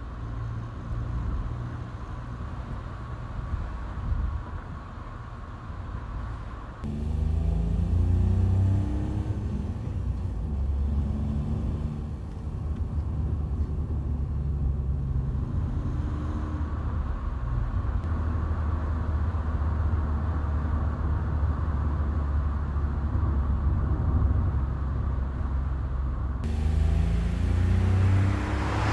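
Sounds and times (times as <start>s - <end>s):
car engine drone accelerating: 6.8s - 18.8s, 26.4s - 28.9s.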